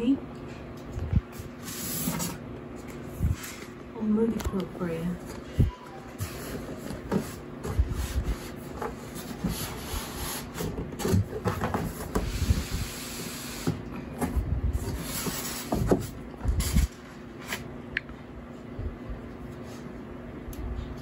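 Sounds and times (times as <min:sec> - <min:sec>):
cardboard rubbing and scraping: 0:06.2 - 0:17.6.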